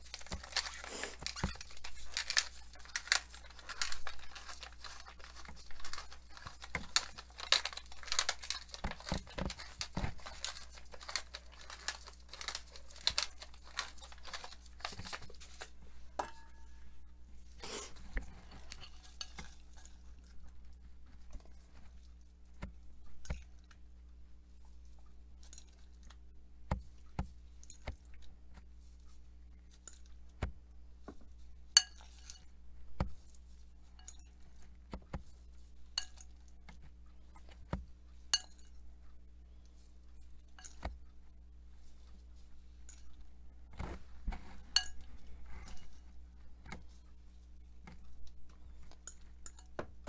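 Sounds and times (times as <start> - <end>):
metal fork clinking on glass bowl: 38.4 - 38.7.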